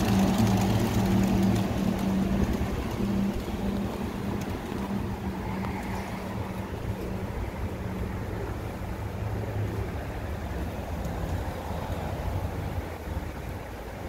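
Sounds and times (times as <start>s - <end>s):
pigeon wingbeats fluttering: 0.0s - 7.5s
vehicle engine hum: 0.0s - 14.0s.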